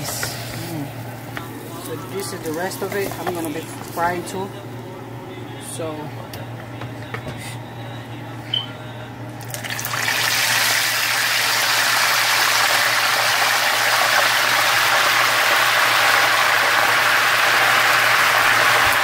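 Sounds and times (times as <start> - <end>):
chicken skin sizzling in oil: 9.5 - 19.0.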